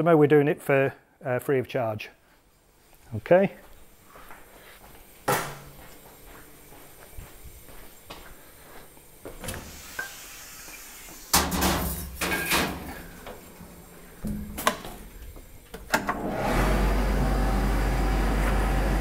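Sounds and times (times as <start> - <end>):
machinery humming: 13.0 - 19.0.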